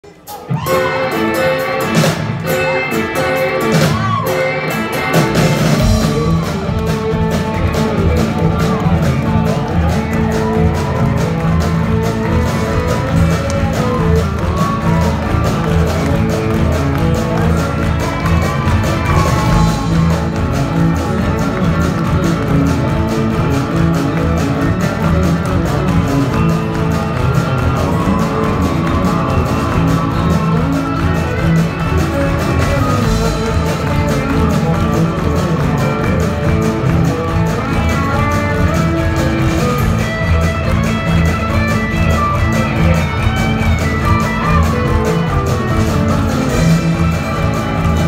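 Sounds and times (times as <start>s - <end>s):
live country-rock band: 0.0s - 48.0s.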